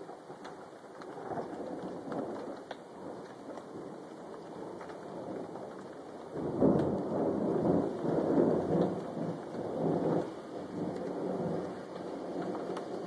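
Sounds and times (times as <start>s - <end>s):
rain hissing: 0.0s - 13.0s
thunder rumbling: 0.0s - 13.0s.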